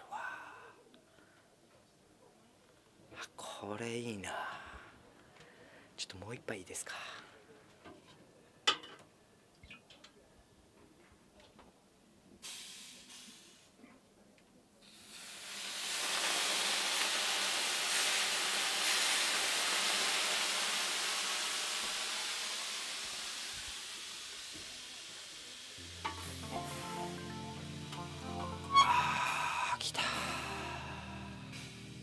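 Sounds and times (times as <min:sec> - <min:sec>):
water hissing on hot stones: 0:12.4 - 0:13.7, 0:14.8 - 0:26.4.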